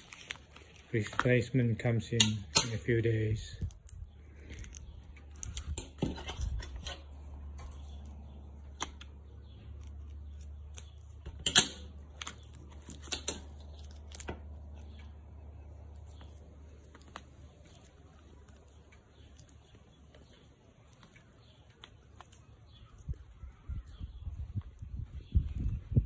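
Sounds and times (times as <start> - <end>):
rubber strap being handled: 0.0 - 25.8
metal tool clicking and tapping: 11.3 - 11.9.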